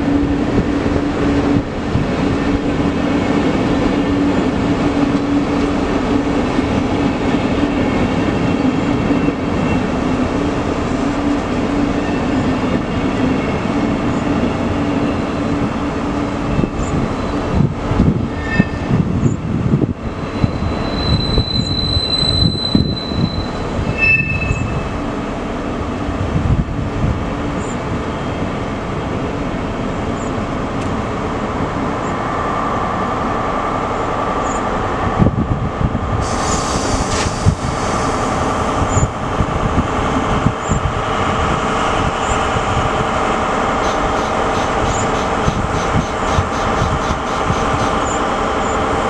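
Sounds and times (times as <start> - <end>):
high-pitched wheel squeals: 18.3 - 19.4, 20.3 - 24.8
train wheels clattering over rail joints: 43.8 - 48.2.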